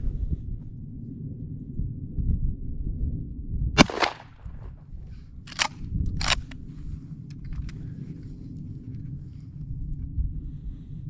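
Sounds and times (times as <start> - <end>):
shotgun firing: 3.8 - 4.8.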